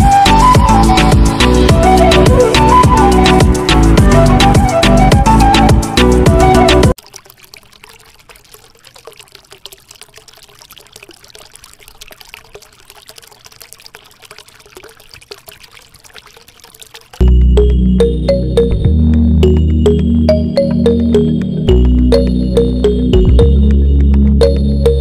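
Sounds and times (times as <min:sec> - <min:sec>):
background music: 0:00.0 - 0:07.0, 0:17.2 - 0:25.0
water pouring into basin: 0:06.9 - 0:17.4.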